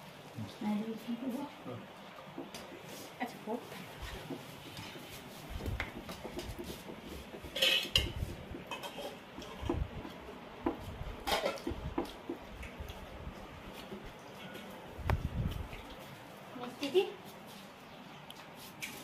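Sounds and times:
dishes clinking and clattering: 7.5 - 9.8, 11.2 - 11.8.

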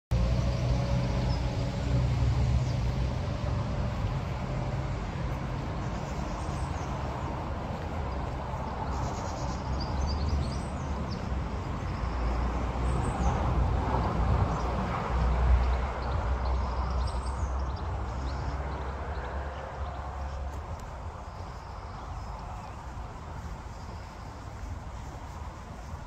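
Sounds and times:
steady low rumble: 0.1 - 26.0.

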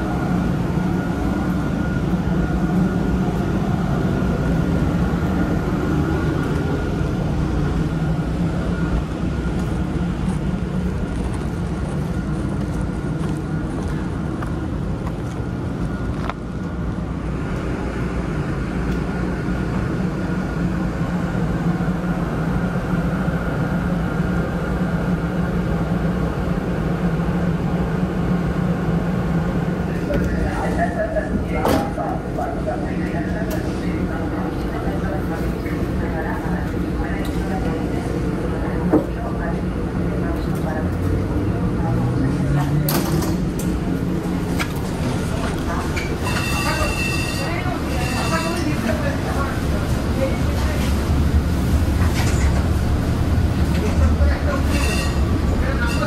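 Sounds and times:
streetcar rumble and hum: 0.0 - 56.0.

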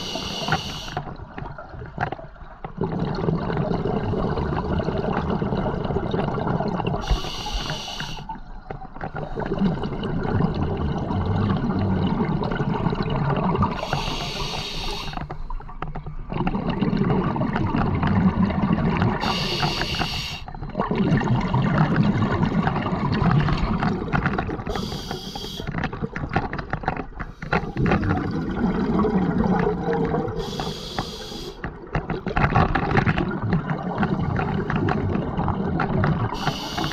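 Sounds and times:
regulator hissing inhalations: 0.0 - 1.0, 7.0 - 8.3, 13.8 - 15.2, 19.2 - 20.5, 24.7 - 25.7, 30.4 - 31.6, 36.4 - 36.9
exhaled bubbles rushing: 0.0 - 7.6, 8.2 - 14.9, 16.2 - 19.9, 20.5 - 30.7, 31.7 - 36.9.

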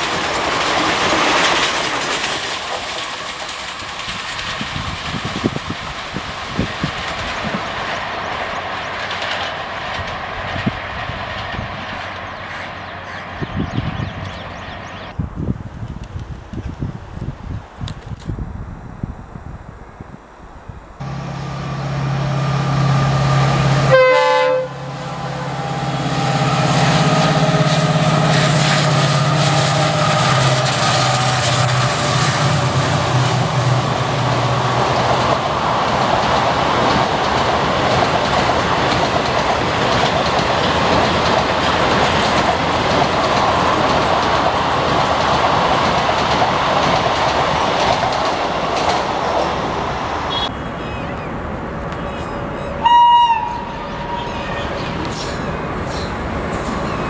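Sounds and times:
train coaches rumbling on rails: 0.0 - 18.8, 21.0 - 57.0
diesel locomotive engine drone: 0.0 - 57.0
locomotive horn blast: 21.0 - 34.5, 50.3 - 50.7, 52.8 - 54.7.

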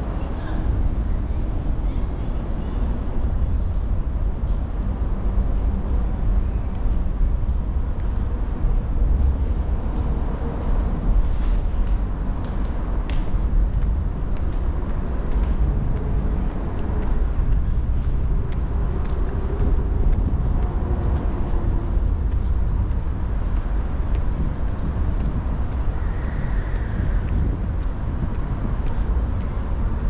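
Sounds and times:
road traffic rumble: 0.0 - 30.0.

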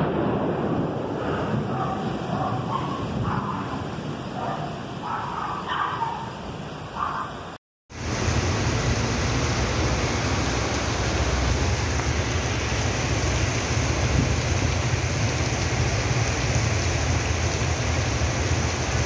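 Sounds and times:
heavy rain pouring: 7.9 - 19.0.

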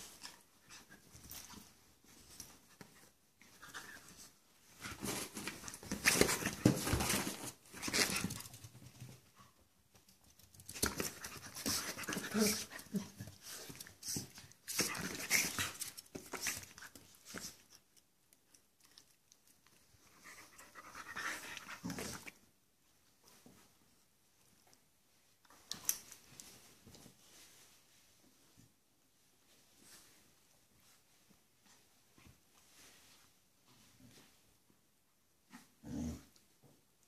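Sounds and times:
dogs panting and snuffling: 10.8 - 17.9, 19.8 - 22.4.

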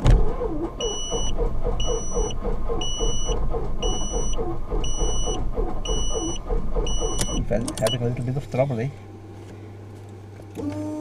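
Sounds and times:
aircraft engine starter cranking: 0.0 - 8.1
repeating electronic beep: 0.8 - 8.0.

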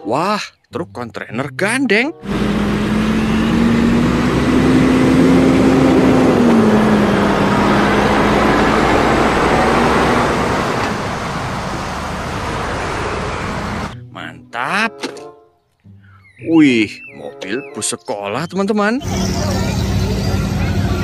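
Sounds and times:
truck diesel engine humming: 2.1 - 14.1, 19.0 - 21.0
tyre and road noise: 2.2 - 14.0.

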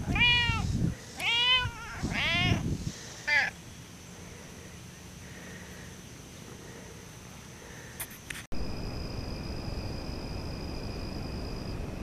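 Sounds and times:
cat meowing: 0.0 - 2.6.

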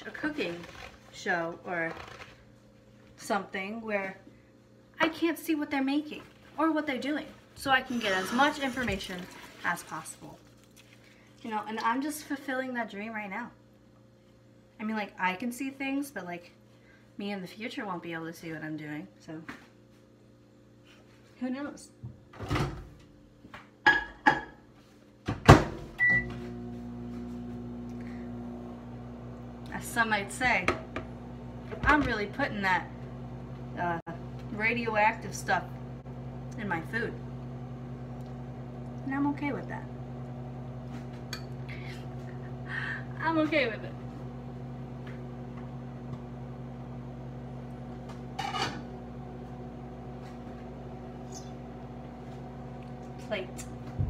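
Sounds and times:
microwave oven humming: 21.6 - 54.0.

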